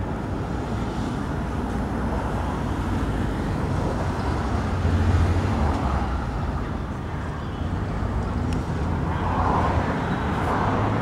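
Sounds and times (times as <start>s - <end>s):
street traffic: 0.0s - 11.0s
tram rolling on track: 0.0s - 11.0s.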